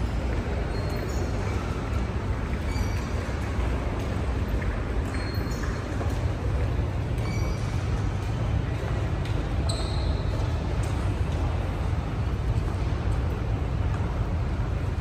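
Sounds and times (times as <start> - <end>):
low rumble of station concourse: 0.0 - 15.0.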